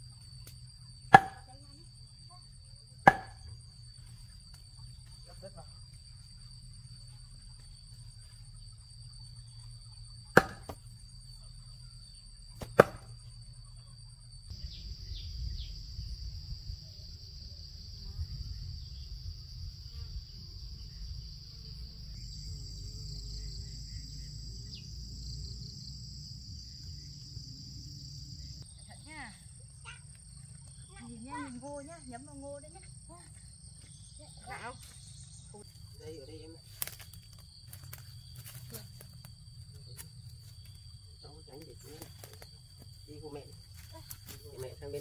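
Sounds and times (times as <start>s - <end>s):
sharp knocks: 1.1s - 1.4s, 3.0s - 3.4s, 10.4s - 10.8s
high-pitched insect buzzing: 14.5s - 31.5s.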